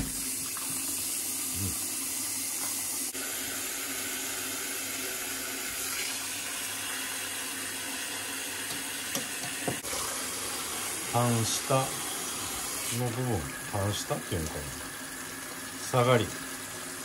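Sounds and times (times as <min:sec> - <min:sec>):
tap running into a sink: 0:00.0 - 0:01.0, 0:08.6 - 0:10.1.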